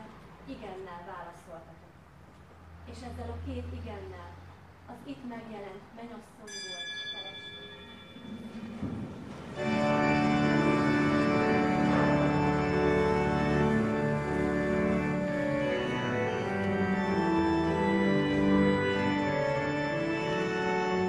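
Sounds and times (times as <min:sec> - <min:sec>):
organ playing slow chords: 0:09.5 - 0:21.0.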